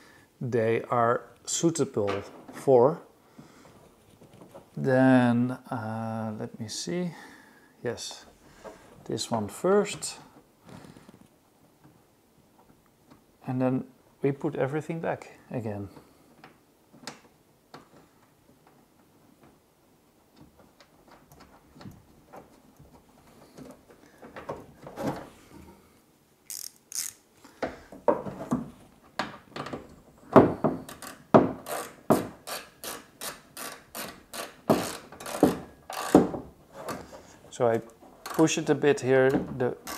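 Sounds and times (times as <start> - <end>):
soft knocks and handling noises: 3.3 - 4.8, 27.5 - 32.4
ratchet clicking: 26.5 - 27.2, 30.9 - 36.2.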